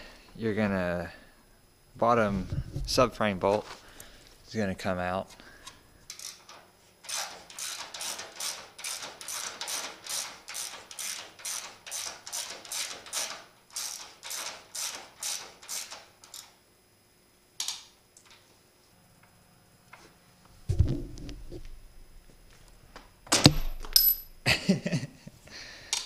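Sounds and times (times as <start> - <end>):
ratchet wrench clicking: 6.1 - 16.5.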